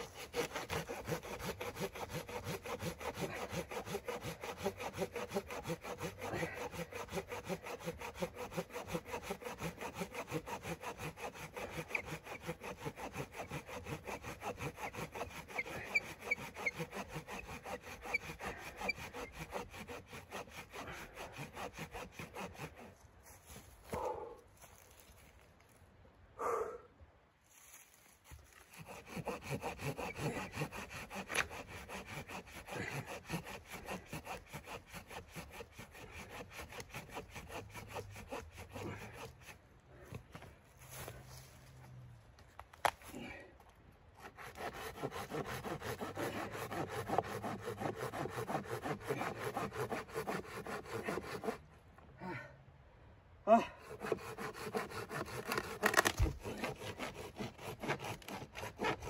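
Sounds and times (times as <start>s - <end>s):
hand saw cutting a log: 0.0s - 24.2s, 28.3s - 41.5s, 44.1s - 51.7s, 53.5s - 59.0s
dry wood cracking: 55.2s - 58.4s.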